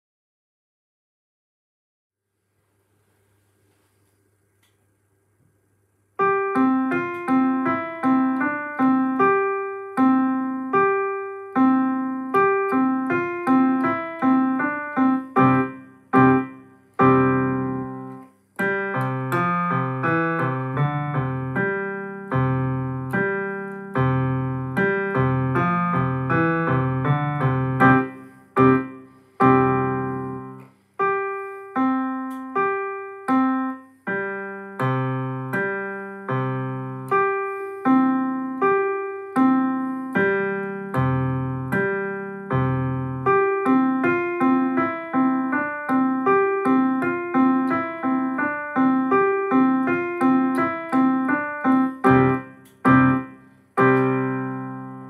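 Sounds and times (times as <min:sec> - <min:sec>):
electronic keyboard piano piece: 0:06.2 - 0:55.0.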